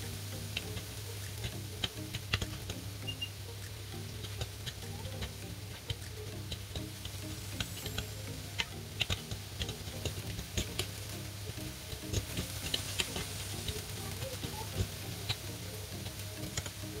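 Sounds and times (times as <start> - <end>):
light sizzle: 0.0 - 17.0
spatula scraping grill pan: 4.0 - 17.0.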